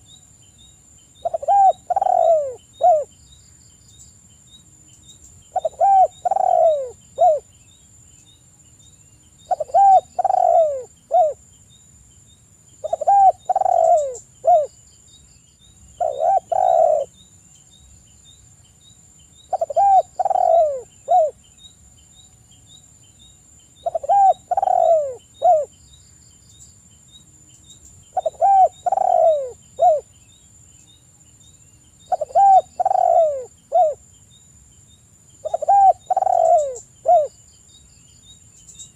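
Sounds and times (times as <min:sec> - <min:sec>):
dove cooing: 0:01.2 - 0:03.1, 0:05.5 - 0:07.5, 0:09.5 - 0:11.4, 0:12.8 - 0:14.7, 0:16.0 - 0:17.1, 0:19.5 - 0:21.4, 0:23.8 - 0:25.7, 0:28.1 - 0:30.1, 0:32.1 - 0:34.0, 0:35.4 - 0:37.3.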